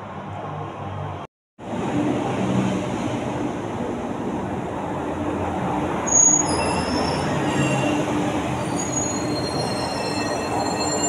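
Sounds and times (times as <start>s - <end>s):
high-pitched wheel squeals: 6.1s - 11.0s.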